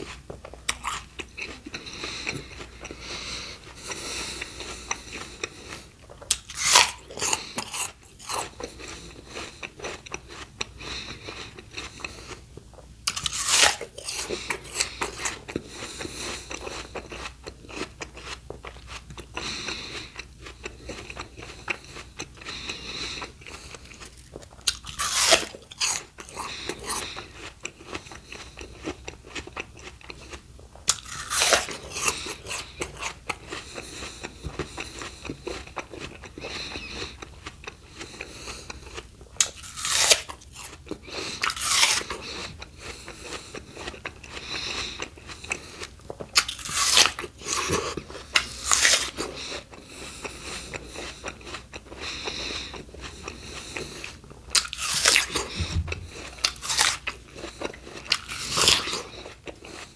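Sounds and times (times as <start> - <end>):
wet crunching chews: 0.0 - 59.9.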